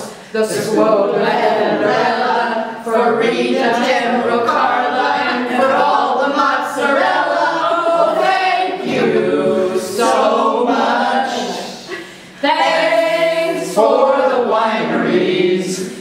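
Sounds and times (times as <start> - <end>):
group singing unaccompanied: 0.0 - 16.0.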